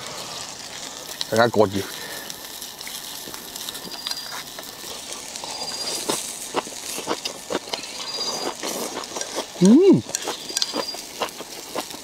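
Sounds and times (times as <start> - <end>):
hot pot boiling hiss: 0.0 - 12.0
chewing and mouth sounds: 2.8 - 12.0.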